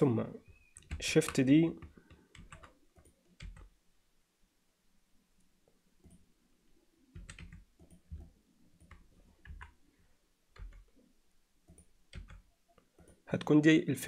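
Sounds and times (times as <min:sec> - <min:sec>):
keyboard keystrokes: 0:07.2 - 0:09.8, 0:11.7 - 0:13.1.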